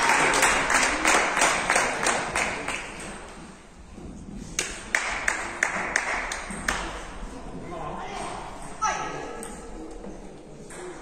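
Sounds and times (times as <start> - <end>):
rhythmic clapping in a hall: 0.0 - 3.4, 4.5 - 7.2.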